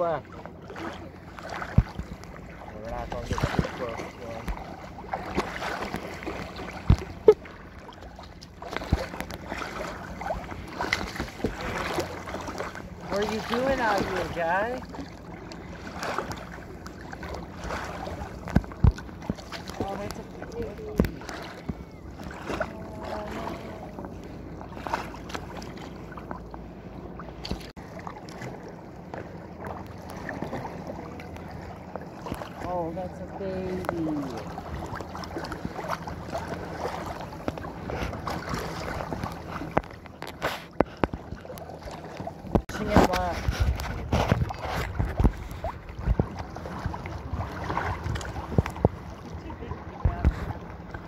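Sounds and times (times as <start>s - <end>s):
water splashing against kayak hull: 0.0s - 51.0s
sharp knocks on hull: 1.6s - 2.2s, 18.4s - 20.2s
wind rumbling on microphone: 30.1s - 51.0s.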